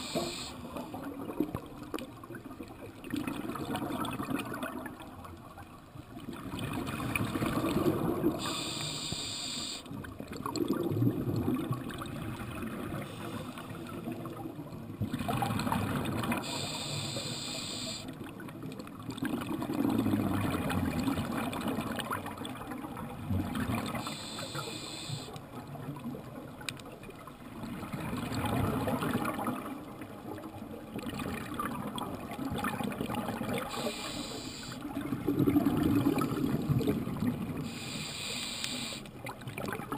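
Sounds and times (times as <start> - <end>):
regulator hissing inhale: 0.0 - 0.7, 8.4 - 9.9, 13.0 - 13.7, 16.4 - 18.1, 24.0 - 25.4, 33.7 - 34.8, 37.6 - 39.1
gurgling exhaled bubbles: 3.0 - 5.0, 6.3 - 8.6, 10.3 - 14.4, 15.0 - 16.7, 19.1 - 24.4, 34.8 - 37.7.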